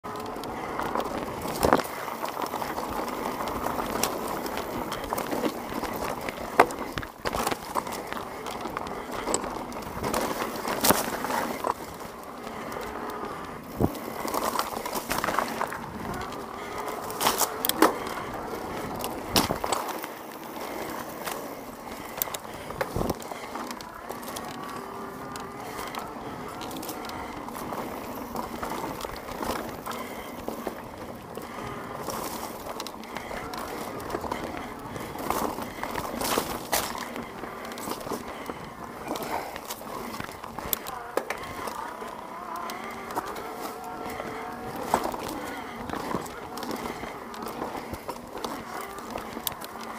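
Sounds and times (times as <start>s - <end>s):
bike tyres rolling on dirt: 0.0s - 49.9s
bike knocking and rattling: 0.1s - 49.9s.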